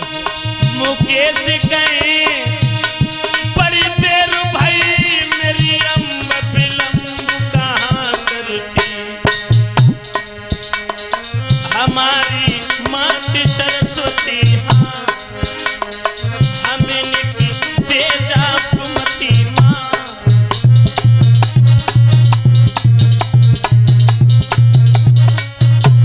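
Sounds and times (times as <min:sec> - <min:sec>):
tabla playing quick rhythm: 0:00.0 - 0:26.0.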